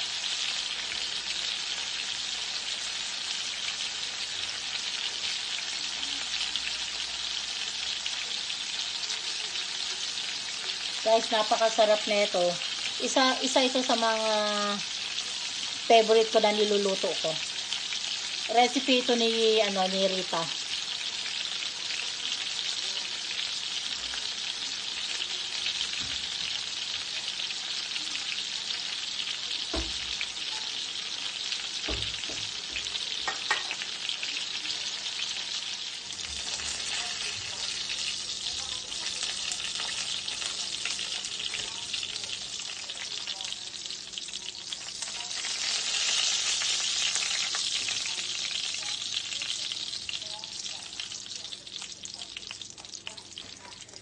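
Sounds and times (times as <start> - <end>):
chicken sizzling in hot oil: 0.0 - 54.0.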